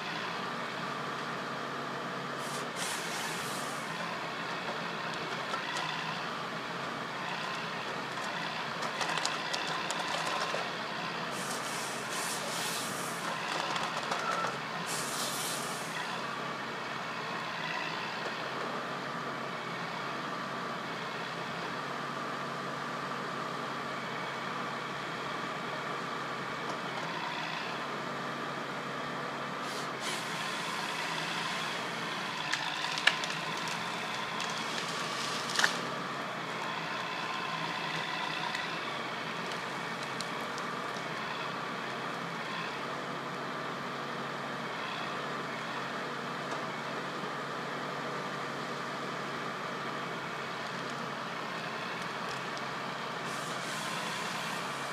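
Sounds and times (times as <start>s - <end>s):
harvester engine and hydraulics: 0.0s - 18.8s, 26.3s - 46.9s, 50.6s - 54.9s
hissing bursts: 2.4s - 3.9s, 11.4s - 13.2s, 14.9s - 15.9s
sharp clicks and cracks: 8.8s - 10.7s, 32.5s - 35.8s.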